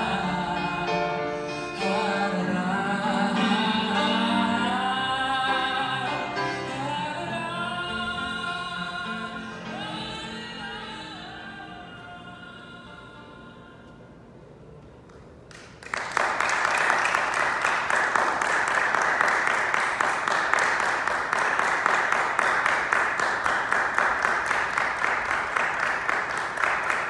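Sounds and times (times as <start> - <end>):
music: 0.0 - 15.1
audience applause: 15.5 - 27.0.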